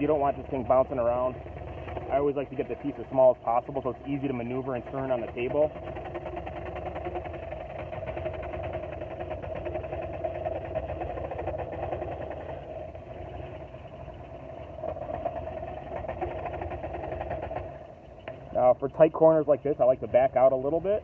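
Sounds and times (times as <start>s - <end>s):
scroll saw cutting wood: 3.8s - 7.3s.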